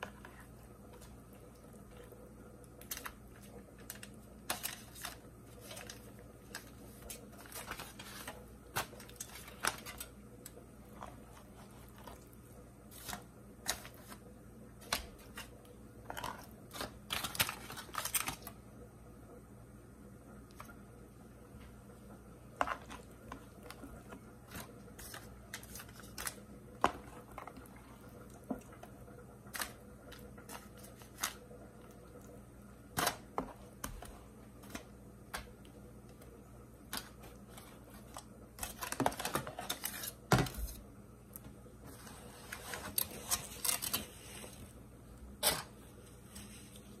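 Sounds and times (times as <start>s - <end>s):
foil crinkling: 2.8s - 12.3s, 12.9s - 18.6s, 24.4s - 26.5s.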